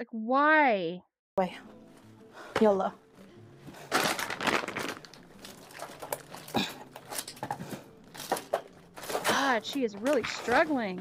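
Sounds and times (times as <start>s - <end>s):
plastic packaging crinkling: 3.8s - 7.4s.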